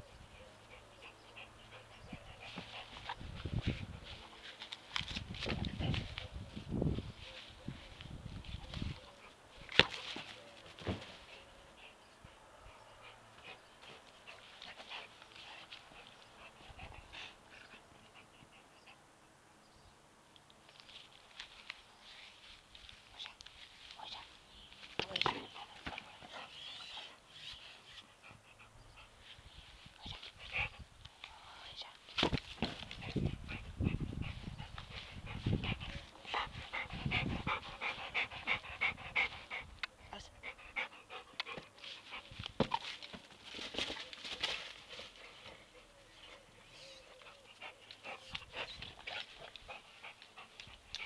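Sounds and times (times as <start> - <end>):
dog panting: 0.0 - 4.6, 11.3 - 19.0, 25.3 - 29.4, 32.9 - 42.8, 45.0 - 51.0.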